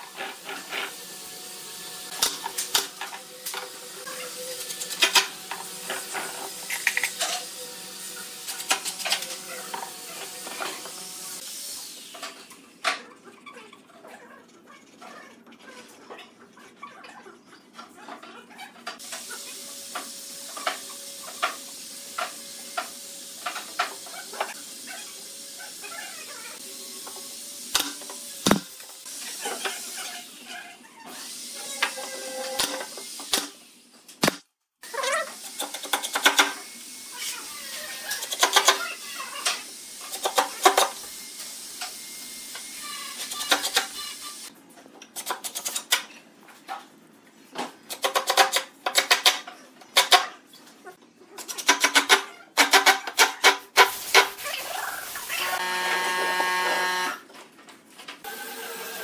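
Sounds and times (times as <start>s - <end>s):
sharp wooden strikes: 28.4s - 28.7s.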